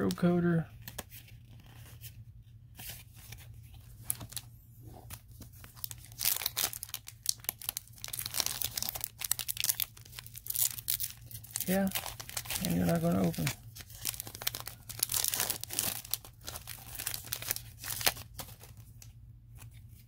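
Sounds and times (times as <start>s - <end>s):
low steady hum: 0.0s - 20.0s
cards rustling: 2.8s - 20.0s
foil wrapper crinkling and tearing: 5.1s - 20.0s.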